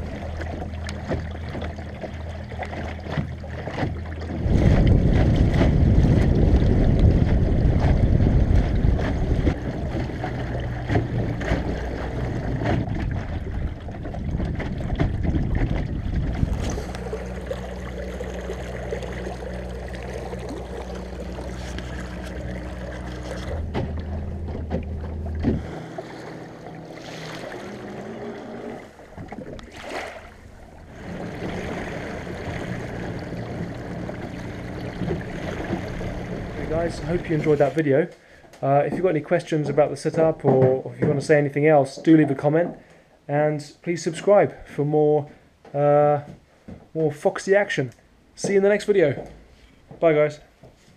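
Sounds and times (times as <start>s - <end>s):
steady low hum: 0.0s - 40.0s
water rushing and splashing at hull: 0.0s - 50.8s
wind buffeting microphone: 4.2s - 17.8s, 28.8s - 37.6s.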